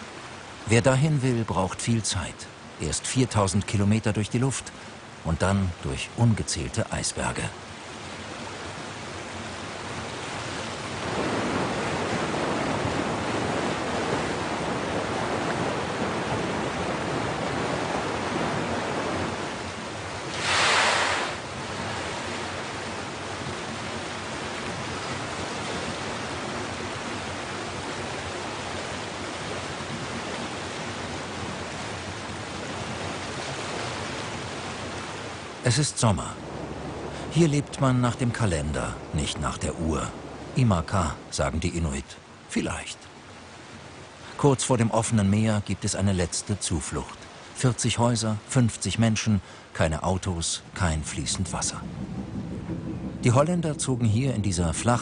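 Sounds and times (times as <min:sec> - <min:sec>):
sea water rushing: 0:00.0 - 0:55.0
water splash: 0:20.2 - 0:25.6.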